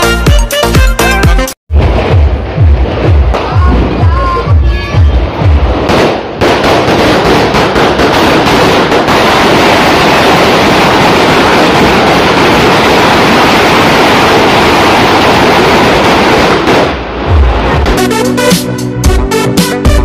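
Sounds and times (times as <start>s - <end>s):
firework crackling: 1.8s - 18.6s
firework fountain hissing: 6.6s - 17.2s.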